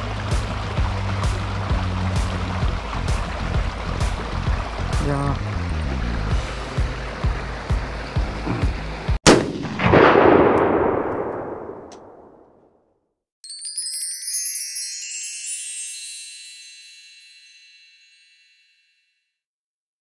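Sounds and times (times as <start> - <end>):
high shimmering chime: 13.4 - 19.2.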